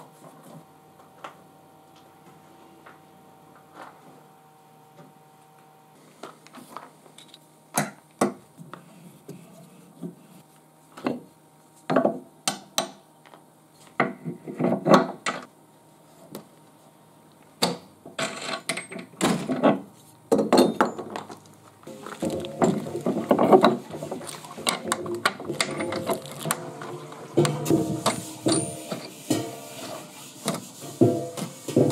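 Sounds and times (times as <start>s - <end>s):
metal tools clinking on wood: 25.6s - 26.5s.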